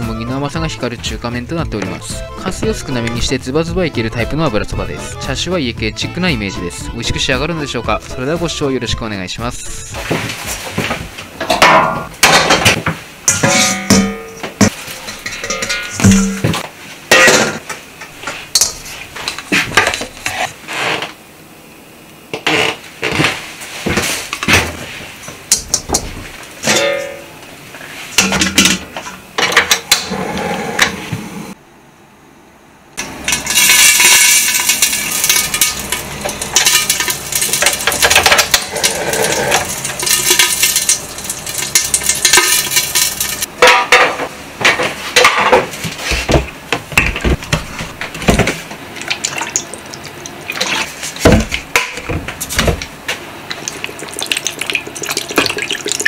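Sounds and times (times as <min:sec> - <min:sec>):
steel bowl and wok clinking: 0:13.3 - 0:16.6, 0:33.3 - 0:43.8
food sizzling in a wok: 0:33.1 - 0:43.5.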